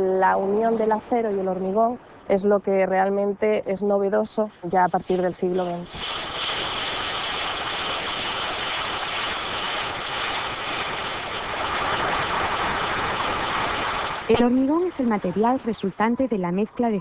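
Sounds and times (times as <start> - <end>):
gravel pouring out: 5.8 - 14.5.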